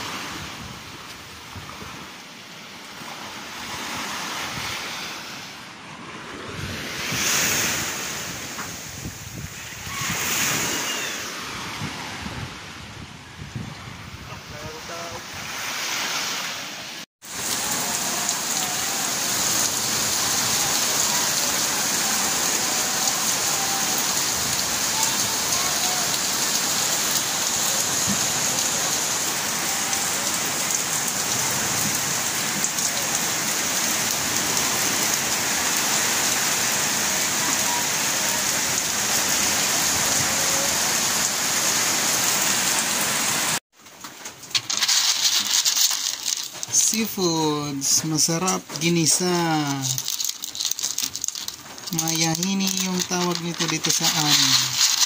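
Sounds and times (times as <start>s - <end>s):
heavy rain on tarpaulin roof: 0.0s - 2.3s, 14.5s - 16.2s, 17.0s - 55.0s
surf: 0.0s - 55.0s.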